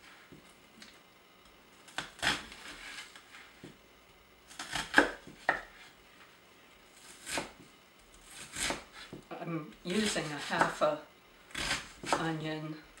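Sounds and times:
knife slicing onion: 1.9 - 3.1, 4.5 - 5.9, 7.0 - 7.6, 8.2 - 9.2, 9.9 - 10.8, 11.5 - 12.4.

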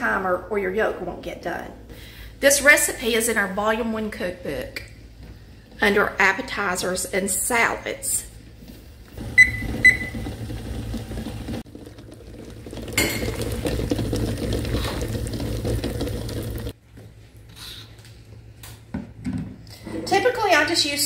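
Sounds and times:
water boiling in saucepan: 8.1 - 16.8.

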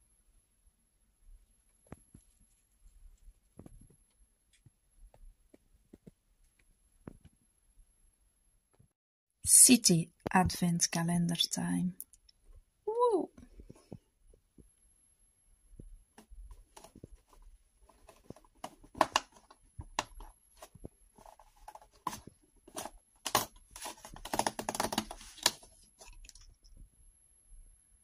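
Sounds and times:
cardboard tearing: 20.6 - 25.8.

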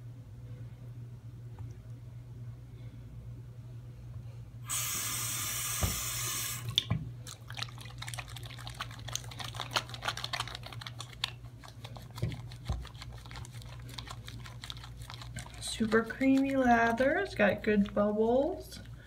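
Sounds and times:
faucet running onto hands: 4.7 - 6.9
soapy hands rubbing together: 6.3 - 18.0.

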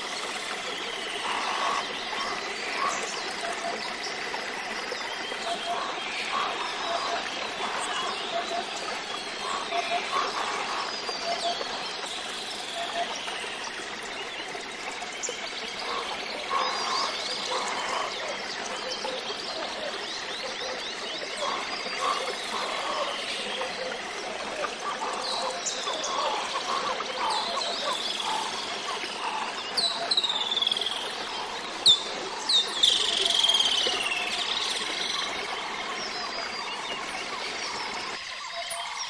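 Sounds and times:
birds chirping: 0.0 - 39.0.

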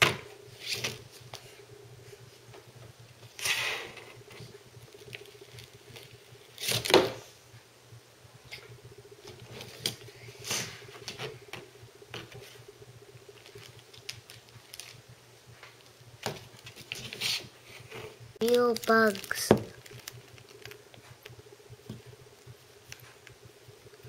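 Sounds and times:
toy package crinkling: 13.4 - 15.0, 18.4 - 20.8.

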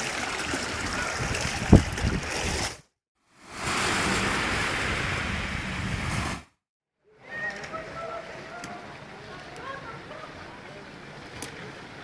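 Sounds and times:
sea surf washing onto beach: 3.4 - 6.4.

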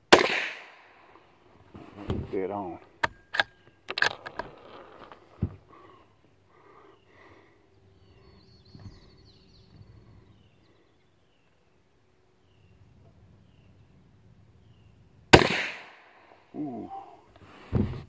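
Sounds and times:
faint bird chirps: 5.6 - 15.2.

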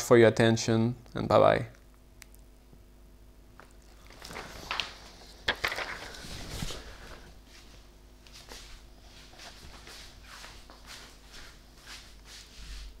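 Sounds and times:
shuffling footsteps: 3.6 - 13.0.

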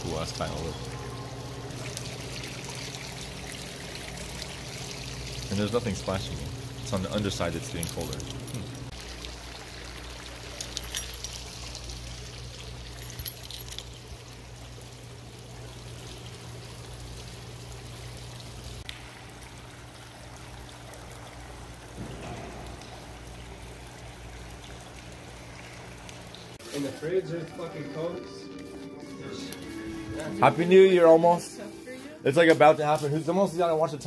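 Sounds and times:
fountain water splashing: 0.0 - 28.3
low hum: 0.0 - 33.7.

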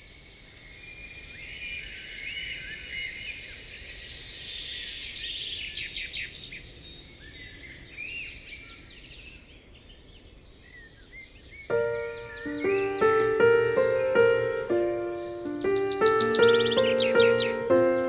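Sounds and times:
birds chirping and singing: 11.7 - 18.0.

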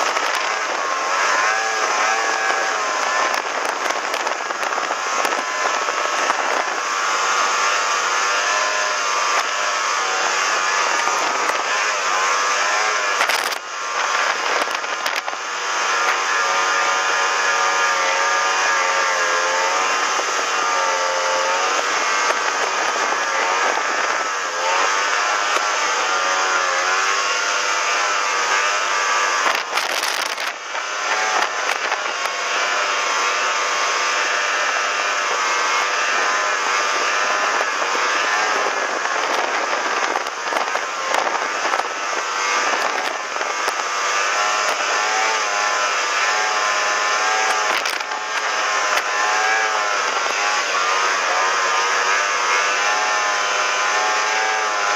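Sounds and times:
snowmobile engine running hard: 0.0 - 54.9.

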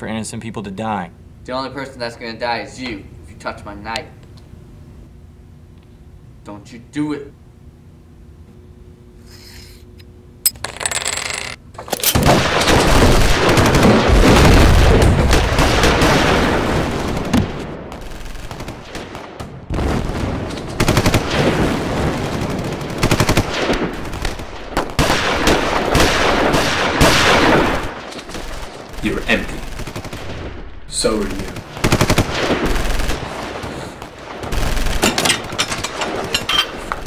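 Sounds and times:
machine-gun fire: 12.0 - 36.4.

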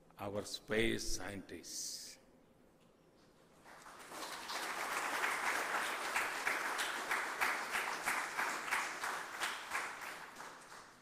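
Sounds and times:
audience applause: 3.6 - 11.0.

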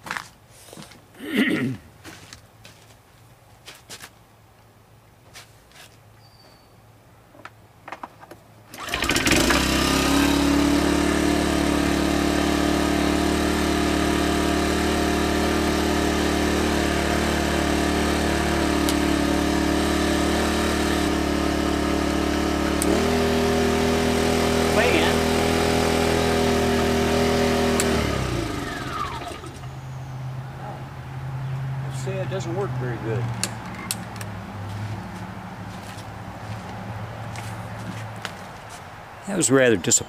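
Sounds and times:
generator engine running: 8.7 - 30.1.

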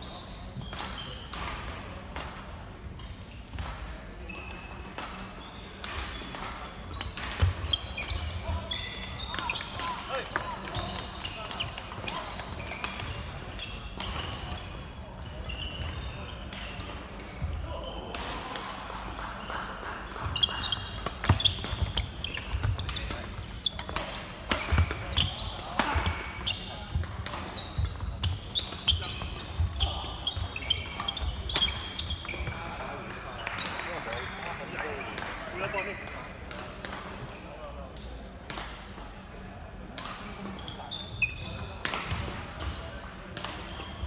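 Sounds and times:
sneakers squeaking on floor: 0.0 - 18.4, 19.4 - 36.2, 40.2 - 44.0
shoes squeaking on wooden floor: 20.3 - 32.6.

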